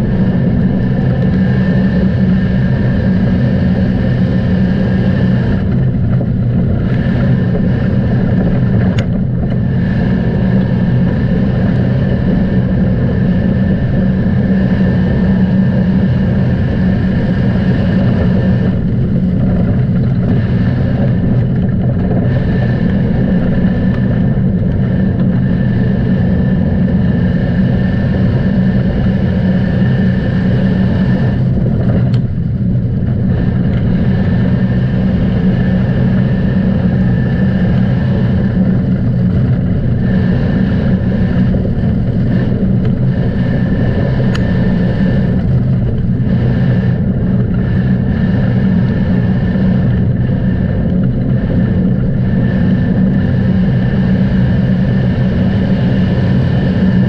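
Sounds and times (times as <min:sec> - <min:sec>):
vehicle engine running: 0:00.0 - 0:57.0.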